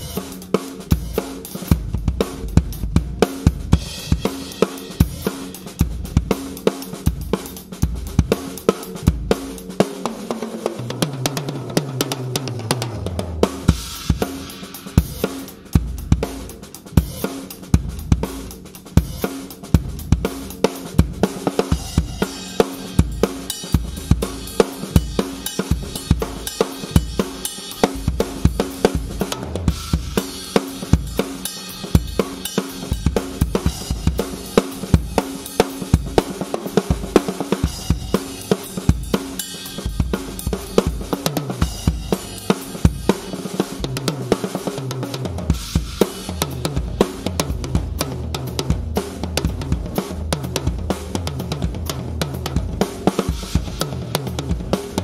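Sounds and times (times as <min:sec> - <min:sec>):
cymbals: 0:00.0 - 0:09.8, 0:13.4 - 0:43.8.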